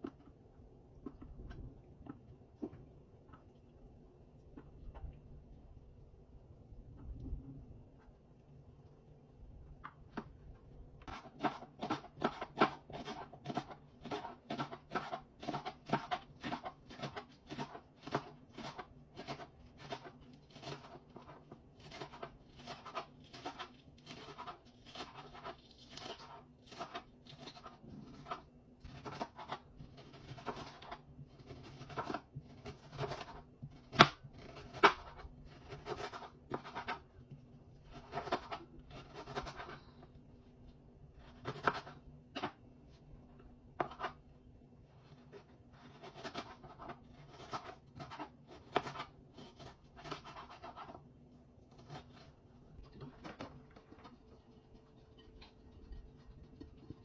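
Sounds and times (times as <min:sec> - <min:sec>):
knife chopping on cutting board: 0:11.1 - 0:37.0, 0:43.8 - 0:44.2.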